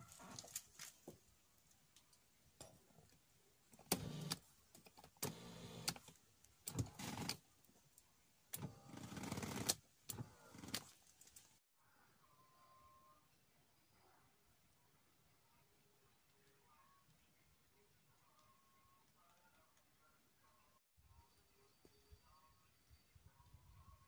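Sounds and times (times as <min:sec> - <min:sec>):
electric seat motor running: 0:03.9 - 0:04.4, 0:05.2 - 0:05.9.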